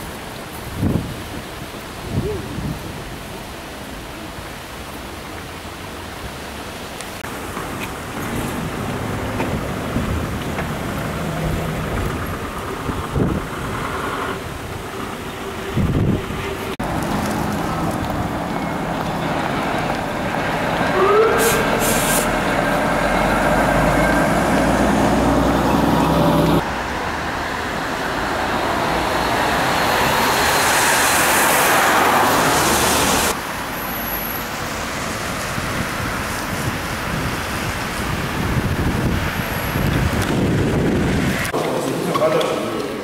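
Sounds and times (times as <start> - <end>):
street and traffic noise: 0.0 - 43.0
coach engine: 7.3 - 33.4
rising squeal: 20.8 - 26.6.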